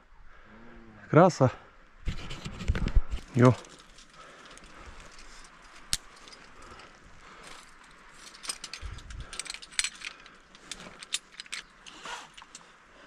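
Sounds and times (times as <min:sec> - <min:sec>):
metal climbing gear clinking: 0:03.2 - 0:12.9.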